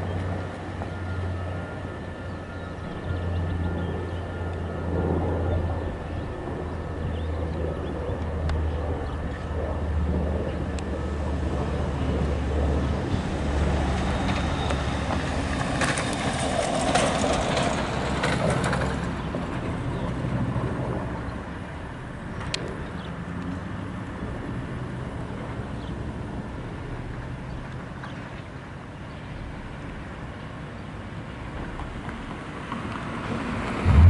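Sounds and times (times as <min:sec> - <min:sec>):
aircraft engines droning overhead: 0:00.0 - 0:34.0.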